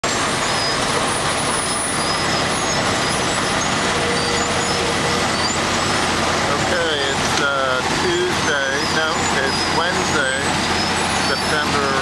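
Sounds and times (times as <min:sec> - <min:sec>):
diesel engines and grinding: 0:00.0 - 0:12.0.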